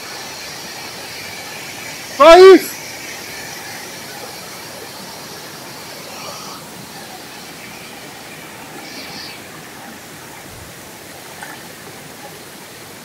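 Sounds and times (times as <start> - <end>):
stream water running over rocks: 0.0 - 13.0.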